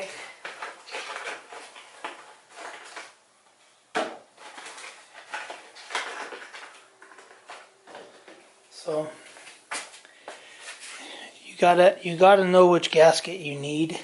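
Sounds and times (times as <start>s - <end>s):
packaging rustling: 0.0s - 3.2s, 4.3s - 8.6s.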